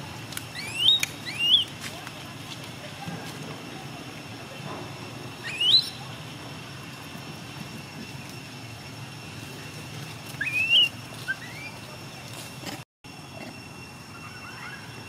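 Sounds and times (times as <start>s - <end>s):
whistle-like animal calls: 0.4s - 1.8s, 5.3s - 6.2s, 10.3s - 12.0s, 14.0s - 15.0s
faint steady high tone: 13.1s - 15.0s.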